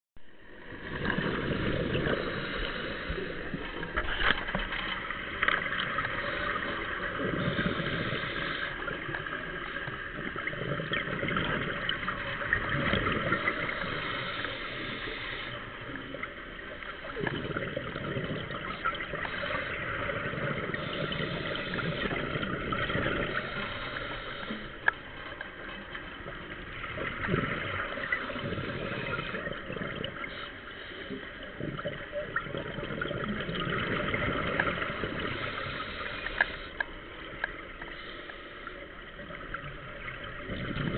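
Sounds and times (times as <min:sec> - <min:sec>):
scuba regulator hissing inhalations: 0:01.6 - 0:03.7, 0:06.0 - 0:09.0, 0:13.4 - 0:15.7, 0:23.1 - 0:24.8, 0:35.1 - 0:36.8
exhaust bubbles bursting: 0:17.0 - 0:23.4, 0:26.7 - 0:30.3, 0:31.6 - 0:35.4.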